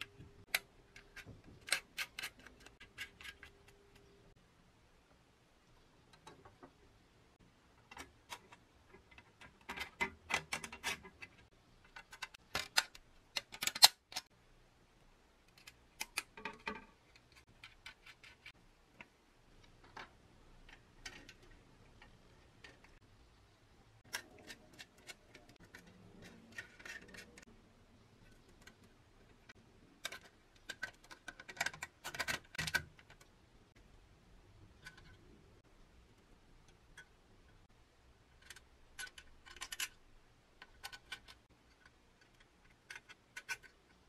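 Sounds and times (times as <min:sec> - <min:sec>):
metal toy parts clicking: 0:00.0 - 0:04.1, 0:07.9 - 0:14.3, 0:15.5 - 0:18.5, 0:24.0 - 0:27.4, 0:28.2 - 0:33.2, 0:38.4 - 0:40.0, 0:40.6 - 0:44.0
small nuts and bolts tapping: 0:15.5 - 0:23.0, 0:28.2 - 0:33.3.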